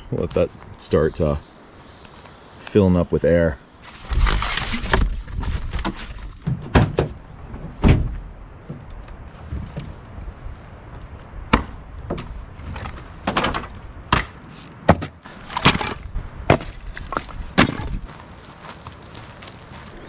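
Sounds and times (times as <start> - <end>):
firewood knocking together: 11.5 - 18.0.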